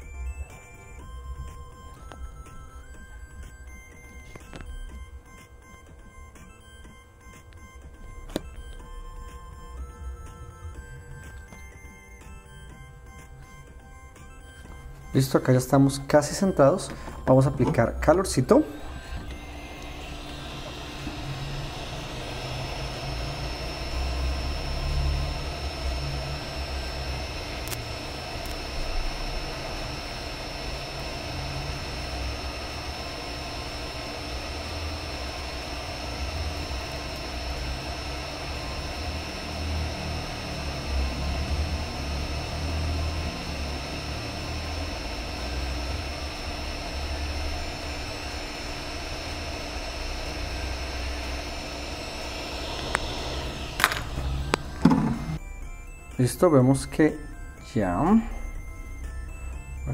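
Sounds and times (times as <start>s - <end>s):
hot air gun blowing: 18.6s - 41.2s, 47.6s - 55.4s.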